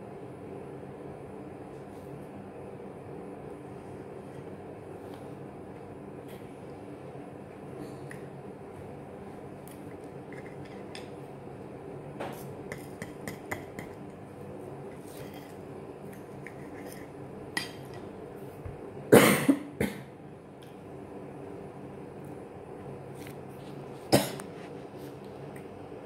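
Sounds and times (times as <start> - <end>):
loud cough: 19.1 - 20.1, 24.1 - 24.4.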